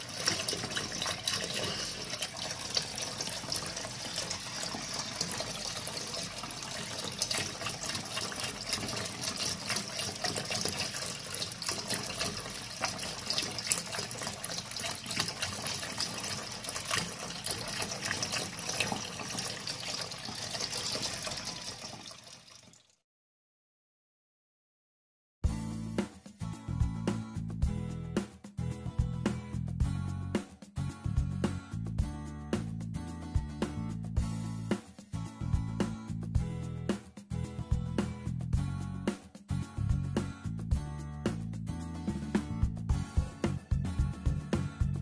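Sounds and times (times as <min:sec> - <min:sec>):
tap water running into metal sink: 0:00.0 - 0:23.0.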